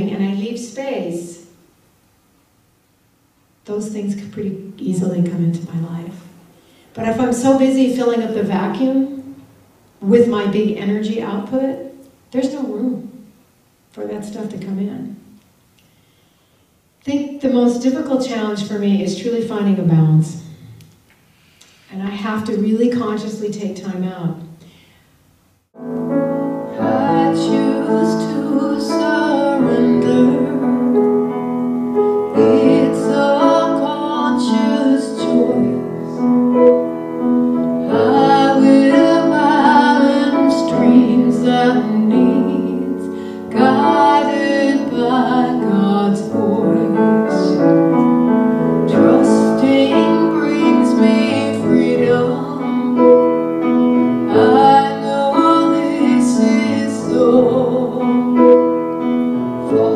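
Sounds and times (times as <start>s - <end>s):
piano chords: 25.7s - 59.9s
woman singing: 26.7s - 31.0s, 32.3s - 36.2s, 37.8s - 47.7s, 48.9s - 53.2s, 54.3s - 58.4s, 59.6s - 59.9s.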